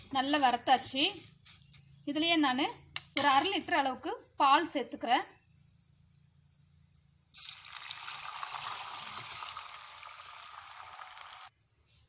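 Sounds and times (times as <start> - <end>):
milk pouring into a pan: 7.4 - 11.5.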